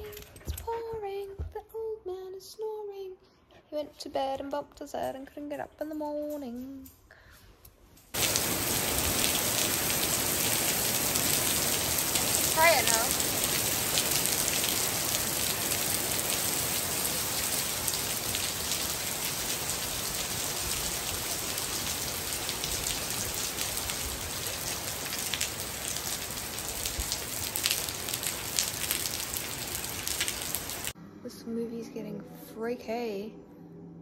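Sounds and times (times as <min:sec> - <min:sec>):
raindrops ticking nearby: 0:08.0 - 0:31.0
heavy rain hissing: 0:08.2 - 0:31.0.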